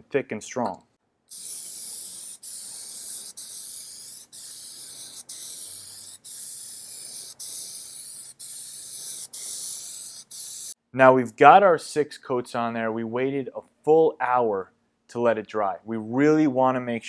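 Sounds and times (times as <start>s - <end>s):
aerosol spray can hissing: 1.3s - 10.8s.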